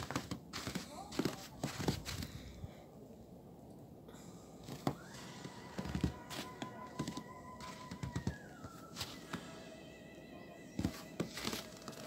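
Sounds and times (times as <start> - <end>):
footsteps in deep snow: 0.0 - 2.4, 5.7 - 9.5, 10.8 - 12.0
steady whistle-like tone: 4.9 - 10.8.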